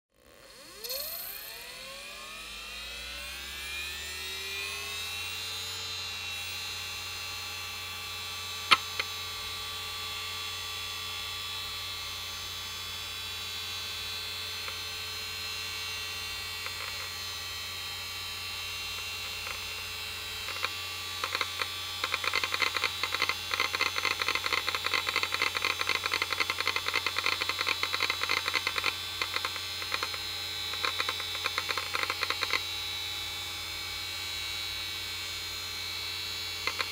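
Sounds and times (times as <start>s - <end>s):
hard drive whine and hum: 0.2s - 36.9s
hard drive seek clicking: 8.6s - 9.1s, 19.0s - 19.7s, 20.4s - 32.7s, 36.6s - 36.9s.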